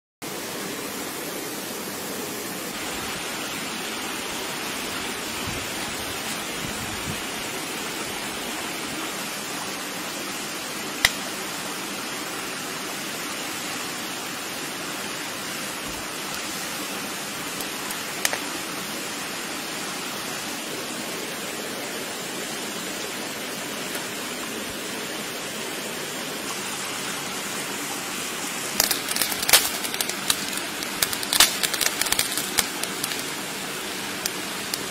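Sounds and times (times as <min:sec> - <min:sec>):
stream rushing: 0:00.2 - 0:34.9
crackling snaps: 0:11.0 - 0:11.3, 0:17.5 - 0:18.5, 0:28.7 - 0:34.9
wood fire pops: 0:28.8 - 0:33.3.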